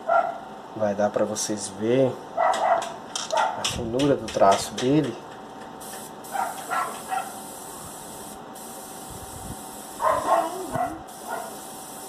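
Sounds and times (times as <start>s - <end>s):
airbrush air hiss: 5.8s - 12.0s.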